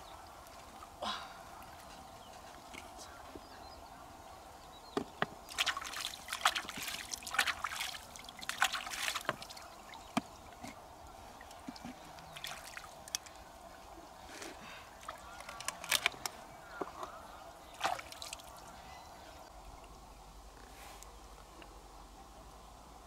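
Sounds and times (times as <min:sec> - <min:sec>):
hands splashing in water: 0:05.5 - 0:09.6, 0:17.8 - 0:18.6
faint steady hiss: 0:09.2 - 0:23.0.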